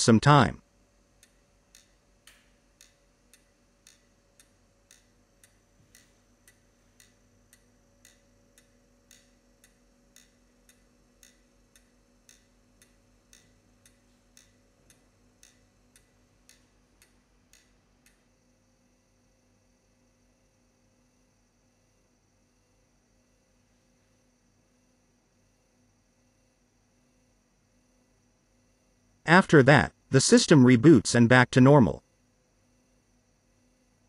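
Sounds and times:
low steady hum: 0.0 - 34.0
clock ticking: 1.1 - 18.2.

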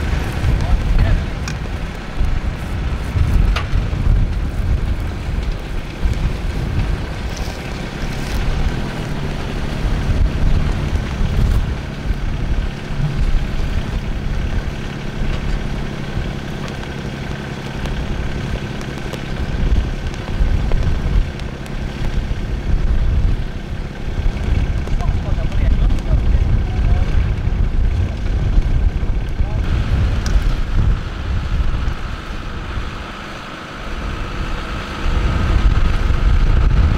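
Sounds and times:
tractor engine running: 0.0 - 36.9
wind buffeting microphone: 0.0 - 36.9.

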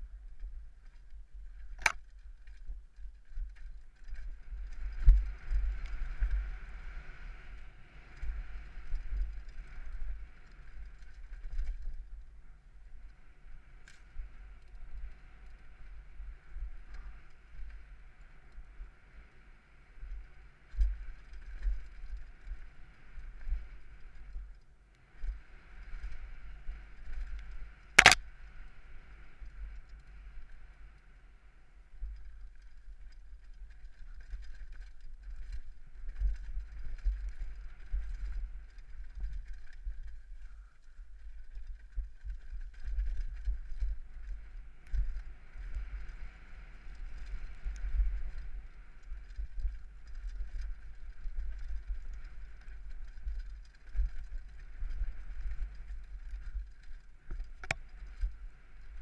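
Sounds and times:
wind buffeting camera: 0.0 - 12.4, 32.0 - 59.0.

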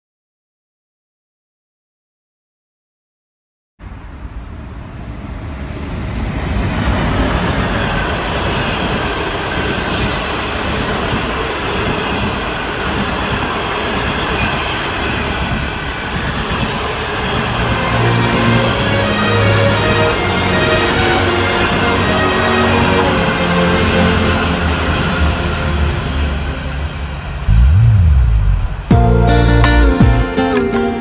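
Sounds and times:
train wheels rushing on rails: 4.2 - 28.9.

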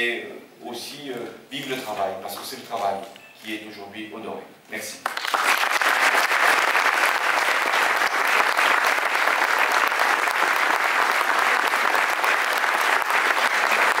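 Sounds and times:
audience applauding: 5.0 - 14.0.

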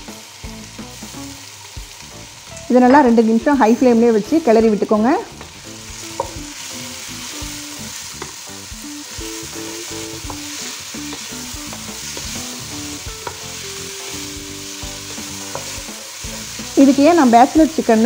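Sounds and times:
chicken and onions sizzling: 0.0 - 18.0
spatula tapping the pan: 5.3 - 6.5, 8.1 - 8.4, 10.2 - 13.6, 14.8 - 16.8.

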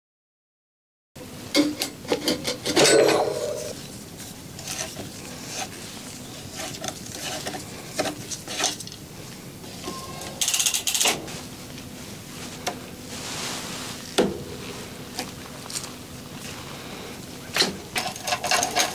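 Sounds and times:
metal tool clinking and scraping: 2.3 - 3.8.

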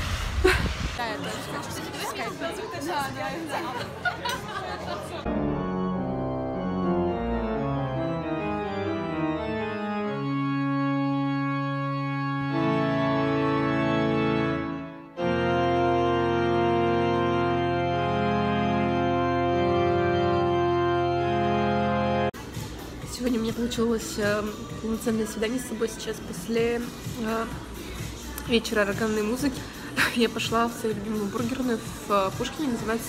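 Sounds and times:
church organ playing: 5.3 - 22.4.

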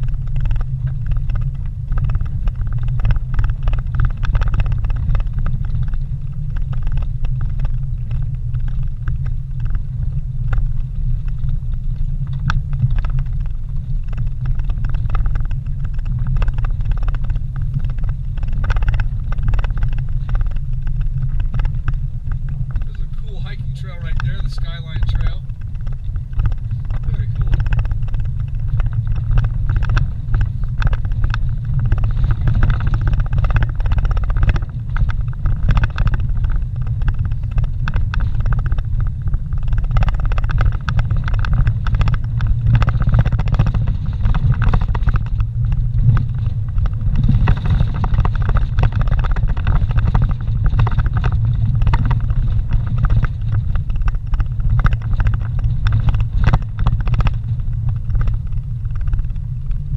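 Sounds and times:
vehicle engine and tyres rumbling: 0.0 - 59.9
knocks and rattles: 10.5 - 59.9.

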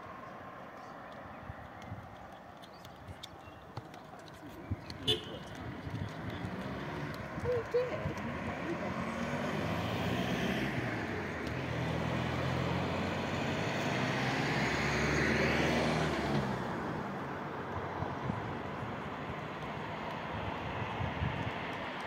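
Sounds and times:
car passing: 4.4 - 22.0.

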